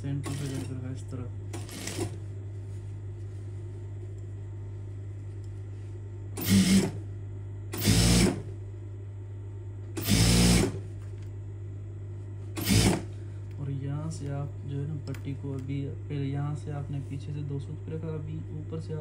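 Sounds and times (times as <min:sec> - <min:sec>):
steady low hum: 0:00.0 - 0:19.0
sewing machine stitching: 0:00.2 - 0:00.7, 0:01.5 - 0:02.2, 0:06.4 - 0:07.0, 0:12.6 - 0:13.1.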